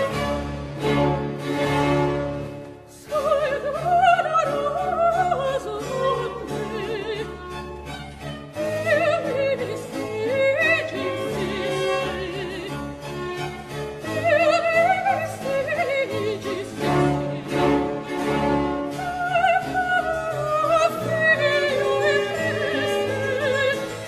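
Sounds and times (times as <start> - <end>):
string orchestra chord: 0.0 - 2.8.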